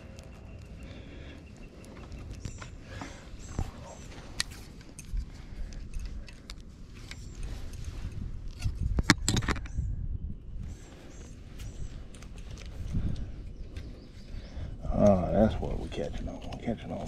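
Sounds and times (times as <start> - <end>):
sharp clicks and metallic clinks: 4.3 - 8.2.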